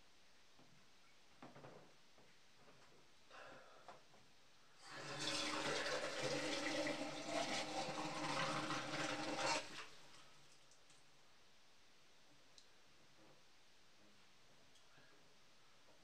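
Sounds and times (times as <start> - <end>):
water running: 4.8 - 10.8.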